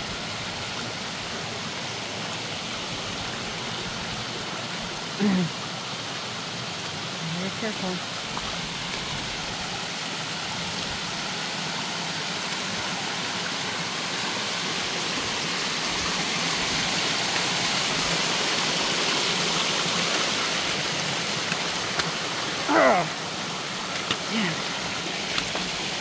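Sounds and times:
creek water rushing down ledges: 0:00.0 - 0:26.0
person's voice: 0:05.2 - 0:05.5, 0:07.2 - 0:08.0, 0:22.6 - 0:23.2, 0:24.2 - 0:24.7.

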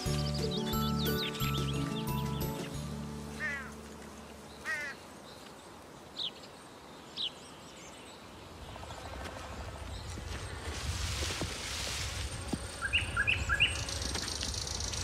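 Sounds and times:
steady outdoor hiss: 0:00.0 - 0:15.0
harsh falling bird calls: 0:04.5 - 0:05.5.

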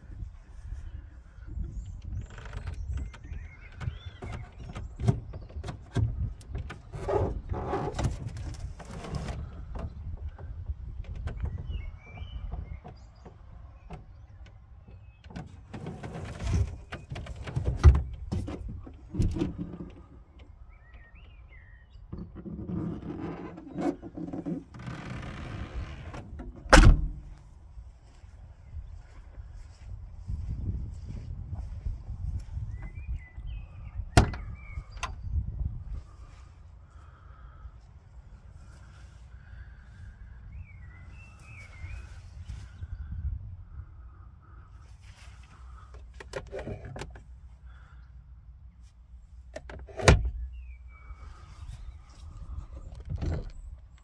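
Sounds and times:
wind rumble: 0:00.0 - 0:45.0
microphone handling noise: 0:21.2 - 0:27.6, 0:28.9 - 0:36.4.

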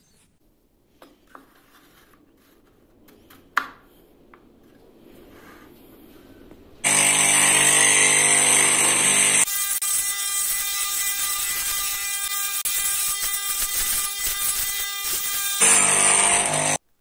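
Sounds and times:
cutting disc whining through wood: 0:06.8 - 0:10.2, 0:15.4 - 0:16.8.

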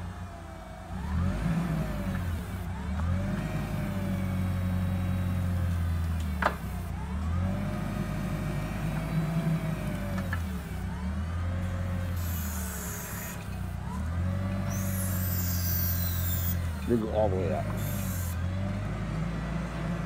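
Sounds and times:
forklift engine revving: 0:00.0 - 0:20.0
rising whine: 0:14.6 - 0:18.4.

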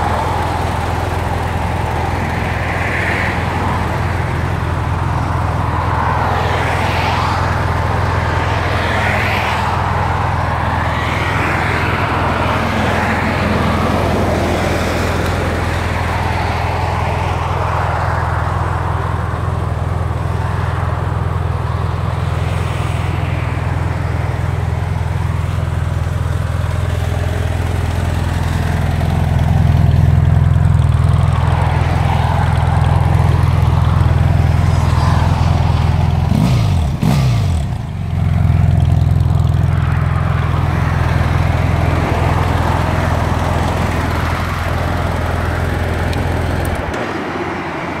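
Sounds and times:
motorcycle engine idling: 0:00.0 - 0:06.0, 0:18.2 - 0:46.9.

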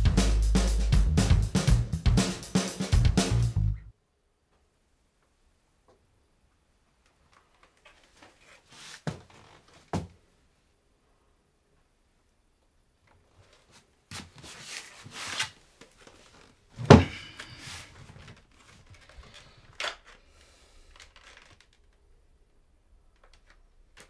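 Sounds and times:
clothes rustling: 0:07.0 - 0:10.2, 0:13.2 - 0:20.2
chair thump: 0:16.8 - 0:17.4.

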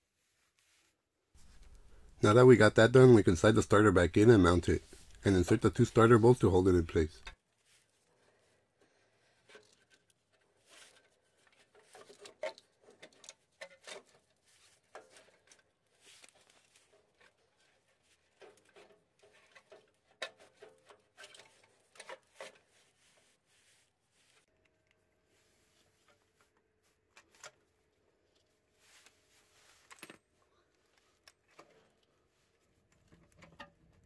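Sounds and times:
faint clicks and scrapes of metal part: 0:01.4 - 0:02.2, 0:09.2 - 0:34.0.

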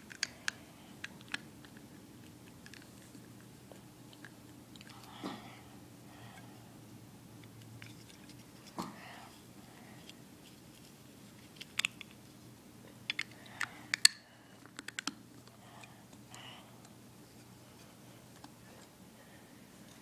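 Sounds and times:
plastic building pieces clicking: 0:13.9 - 0:15.2.

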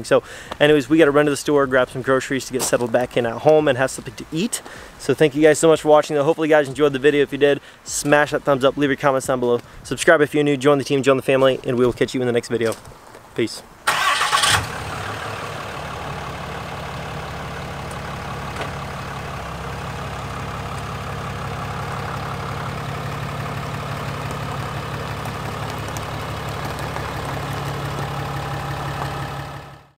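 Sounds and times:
diesel engine idling: 0:13.9 - 0:30.0.

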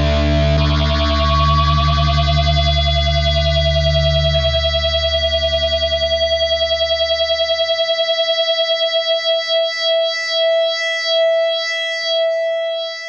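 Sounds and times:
held synthesizer note pulsing: 0:00.0 - 0:07.0.

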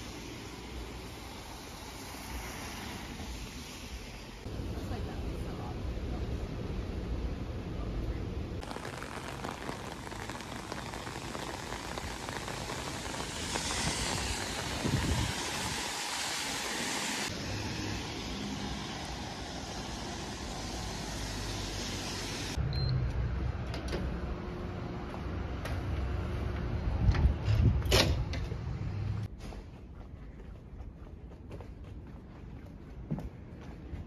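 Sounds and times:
rain on umbrella and pavement: 0:08.6 - 0:22.6
bus rumble: 0:12.6 - 0:30.0.

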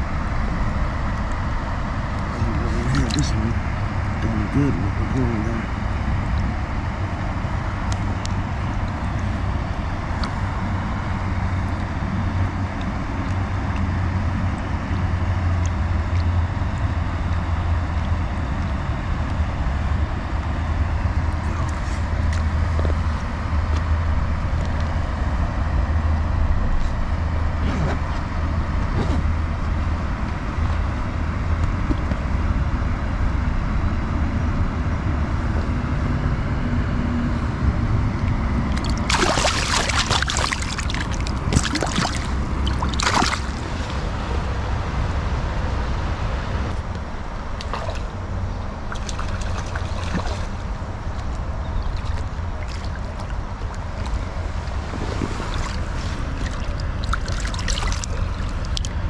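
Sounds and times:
stream water trickling: 0:00.7 - 0:04.3, 0:38.4 - 0:44.2, 0:46.8 - 0:59.0.

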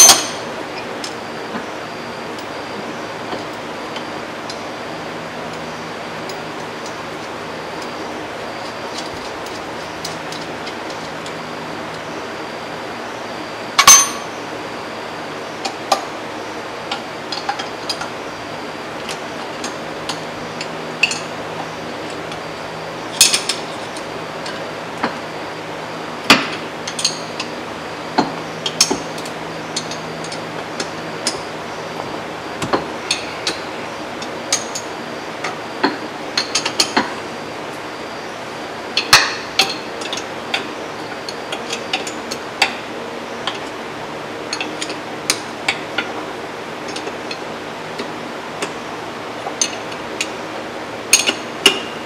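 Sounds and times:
faint steady hum: 0:00.0 - 0:52.0.

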